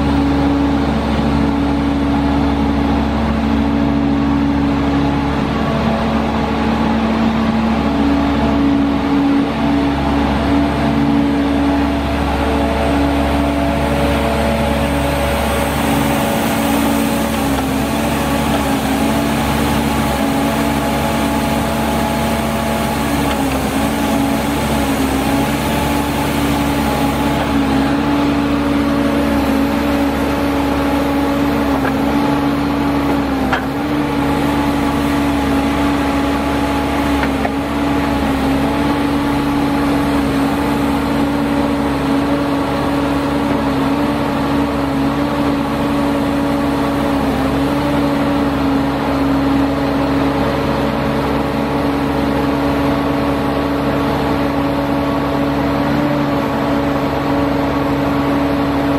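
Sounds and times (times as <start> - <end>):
diesel engine running steadily: 0.0 - 58.9.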